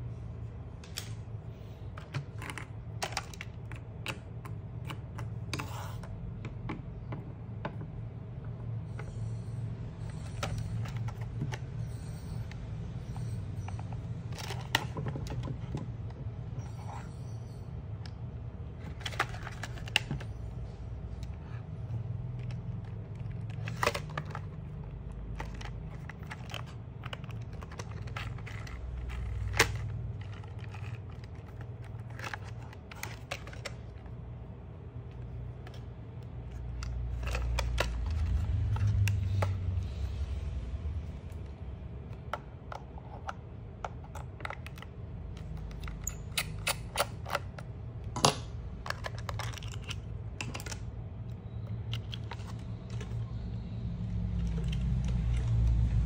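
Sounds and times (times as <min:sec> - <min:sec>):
steady low rumble: 0:19.9 - 0:44.0.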